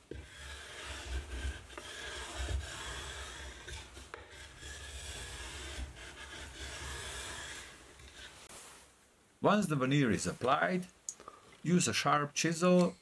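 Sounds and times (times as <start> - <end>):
wooden block scraping wood edge: 0.0 - 8.5.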